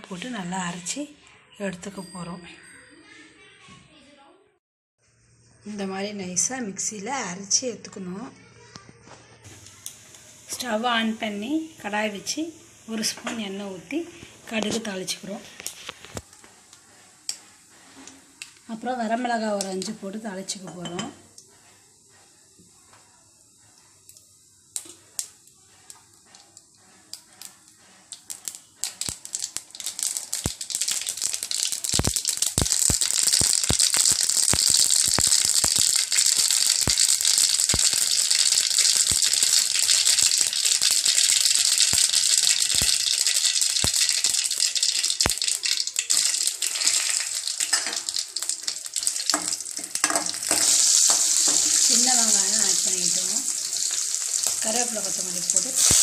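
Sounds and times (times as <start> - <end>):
mustard seeds popping in hot oil: 12.9 - 16.4, 19.4 - 21.5, 24.0 - 56.0.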